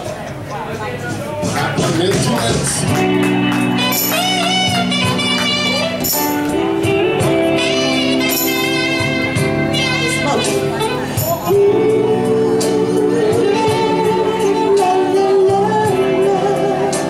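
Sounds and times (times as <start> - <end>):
live band music: 1.4 - 17.0
tambourine jingling: 3.8 - 6.7, 8.2 - 9.2, 11.1 - 11.6.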